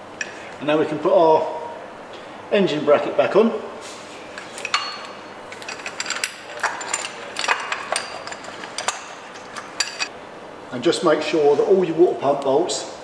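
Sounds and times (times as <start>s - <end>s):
metal clicks and clinks: 4.4s - 10.1s.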